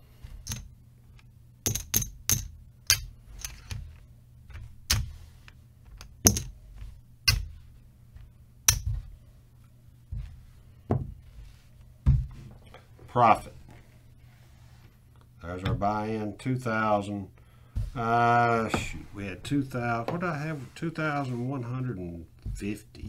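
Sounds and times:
casino chips clicking: 0.4 - 0.7, 1.7 - 3.8.

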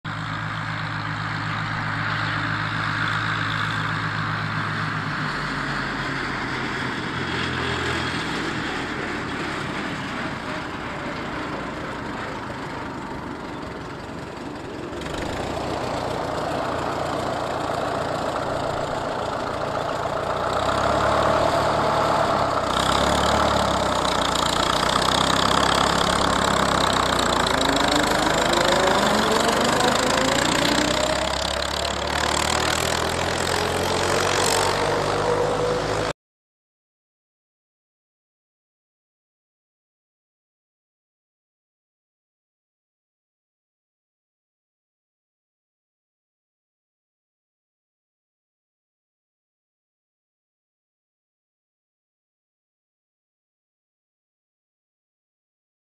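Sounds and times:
tractor engine running: 0.1 - 36.1.

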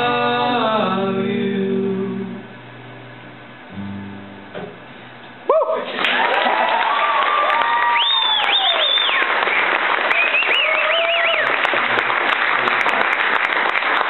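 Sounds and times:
high-pitched whoops: 5.5 - 9.3, 10.1 - 11.5
audience applauding and cheering: 5.5 - 14.0.

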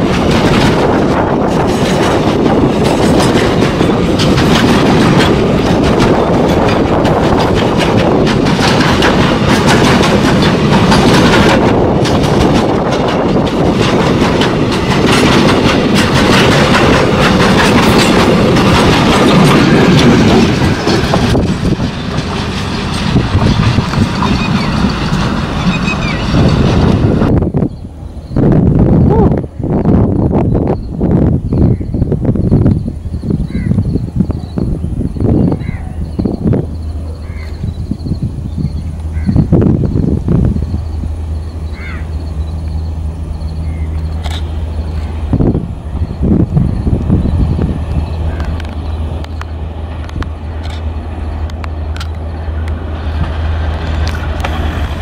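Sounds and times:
wheels clattering over rail joints: 0.0 - 27.4, 36.1 - 55.0
freight train rumbling past: 0.0 - 55.0.

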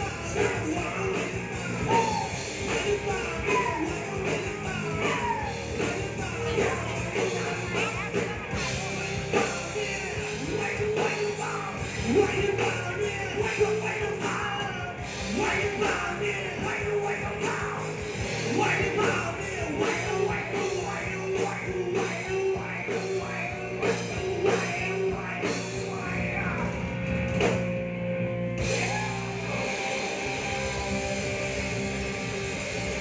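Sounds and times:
person singing: 0.0 - 26.8, 28.6 - 31.0
bass guitar: 0.0 - 33.0
drum kit: 0.0 - 33.0
electric guitar: 0.0 - 33.0.

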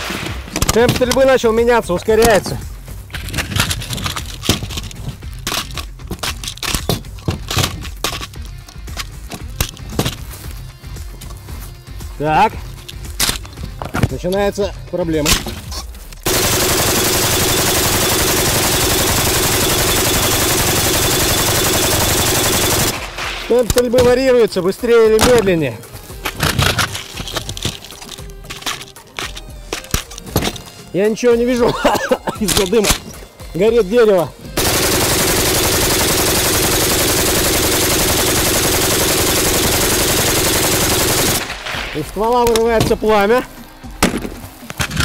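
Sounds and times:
machine gun full-auto burst: 16.2 - 23.1, 34.6 - 41.6.

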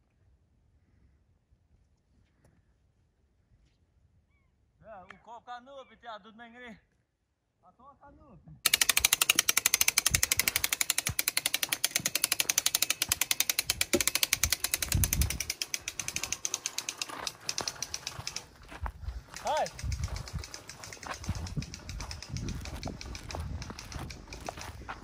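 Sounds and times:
winch ratchet clicking: 8.6 - 25.0.

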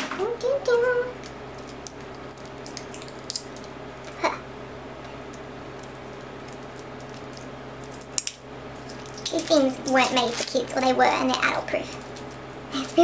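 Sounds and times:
steady low hum: 0.0 - 13.0
plastic wrapper crinkling: 1.2 - 4.2, 5.7 - 13.0.

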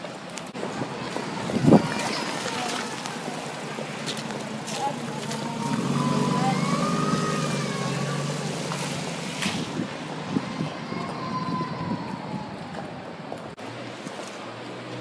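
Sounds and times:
city street noise: 0.0 - 15.0
car engine pulling away: 0.5 - 10.4.

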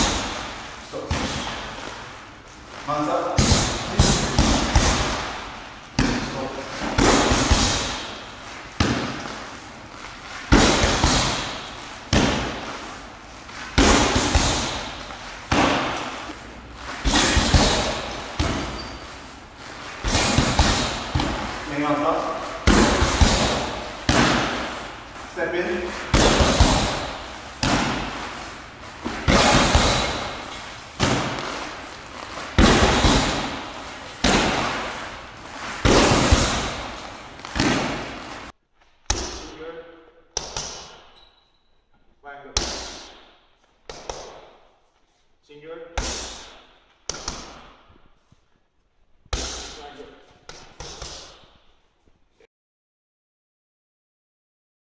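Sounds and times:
punches on heavy bag: 3.2 - 9.3, 10.5 - 12.8, 13.6 - 16.2, 16.9 - 18.8, 20.0 - 24.9, 25.8 - 28.3, 29.0 - 31.8, 32.4 - 38.4, 39.1 - 39.7, 40.4 - 41.2, 42.4 - 44.6, 45.9 - 48.0, 49.3 - 51.6.

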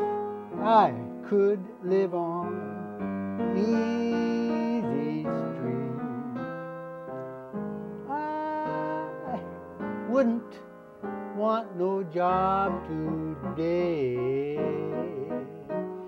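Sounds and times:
piano chords: 0.0 - 16.0
elderly man singing: 0.6 - 2.8, 3.5 - 6.4, 8.1 - 9.5, 10.1 - 10.6, 11.3 - 16.0.

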